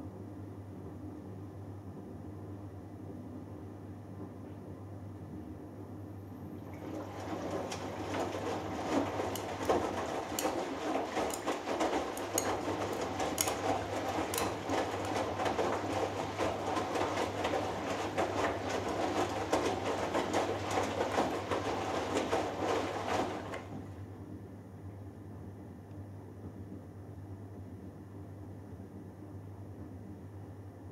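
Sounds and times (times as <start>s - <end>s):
steady low hum: 0.0s - 30.9s
water sloshing: 6.6s - 24.0s
wet laundry tumbling: 6.6s - 24.1s
washing machine drum turning: 6.7s - 23.9s.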